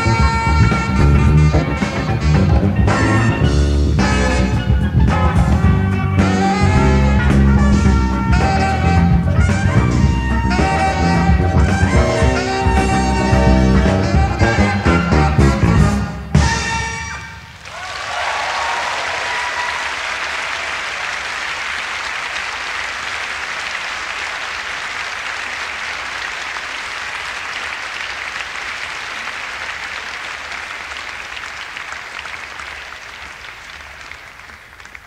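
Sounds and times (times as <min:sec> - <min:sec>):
audience applauding: 0:17.5 - 0:35.0.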